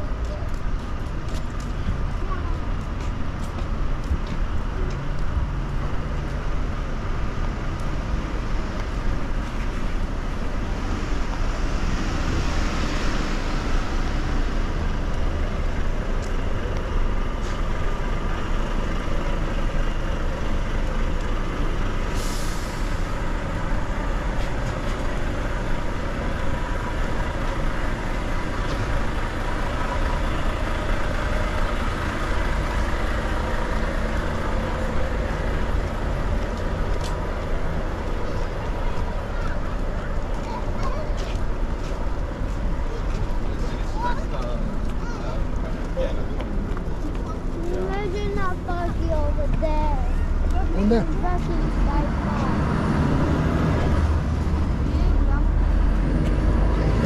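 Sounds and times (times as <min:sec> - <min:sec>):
large vehicle engine rumble: 0:00.0 - 0:57.0
road noise: 0:00.0 - 0:57.0
air hiss: 0:22.1 - 0:23.1.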